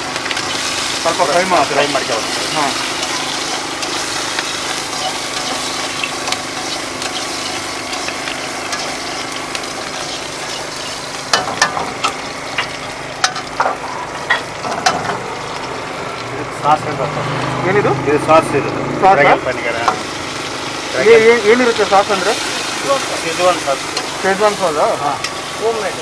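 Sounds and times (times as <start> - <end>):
vegetables sizzling in oil: 0.0 - 26.0.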